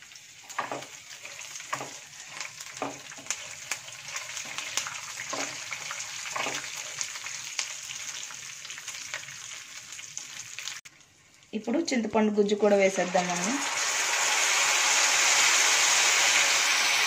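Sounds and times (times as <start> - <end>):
oil sizzling and crackling: 0.0 - 17.0
spatula stirring and scraping: 0.5 - 7.4.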